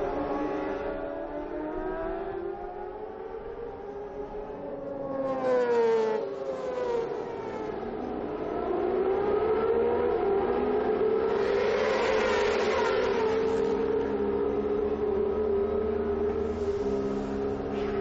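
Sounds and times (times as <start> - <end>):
racing motorcycles at high revs: 8.1 - 15.2.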